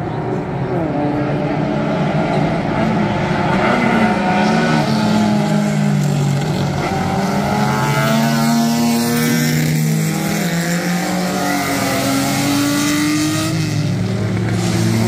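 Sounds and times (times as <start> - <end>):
sports car engines racing: 0.0 - 15.0.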